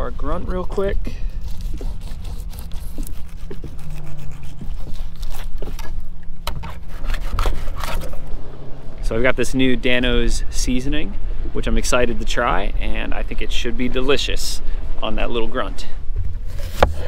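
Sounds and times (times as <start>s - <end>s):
steady low rumble: 0.0s - 17.0s
knife scraping fish scales: 1.2s - 8.2s.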